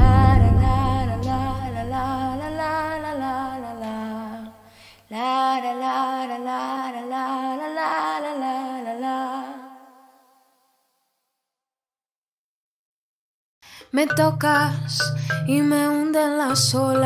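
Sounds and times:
low steady drone: 0.0 - 3.5
woman singing with vibrato: 0.0 - 10.2, 13.9 - 17.0.

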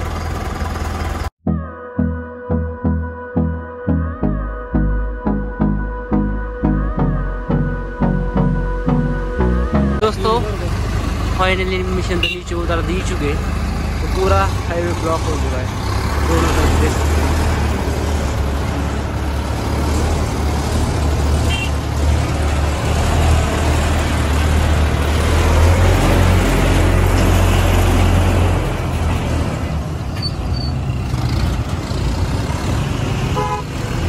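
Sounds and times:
road traffic: 0.0 - 1.4, 4.9 - 34.0
diesel engine droning: 0.0 - 34.0.

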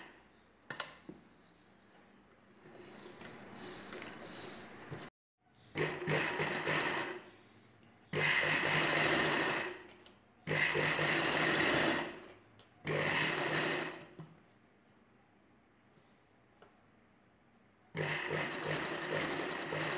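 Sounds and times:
sewing machine stitching: 5.7 - 7.2, 8.1 - 14.2, 18.0 - 19.9.

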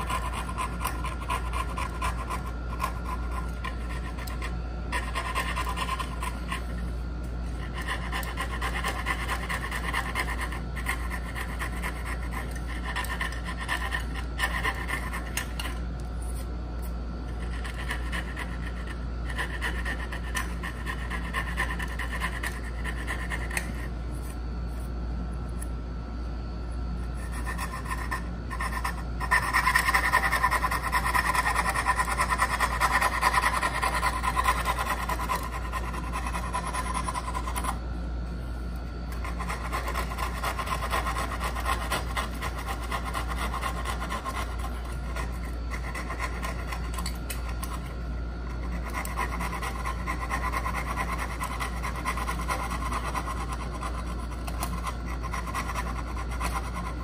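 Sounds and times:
steady low hum: 0.0 - 57.0
hand tool rasping on wood: 27.3 - 37.7.

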